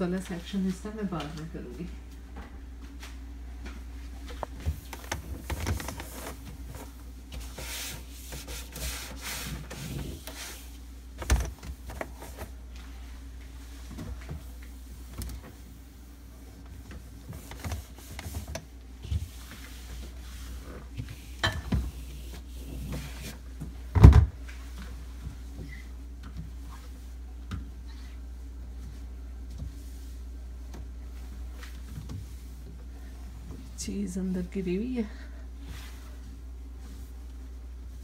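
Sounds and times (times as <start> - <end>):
refrigerator hum: 0.0 - 38.0
cloth rubbing glass shelves: 4.6 - 10.8, 13.6 - 23.5.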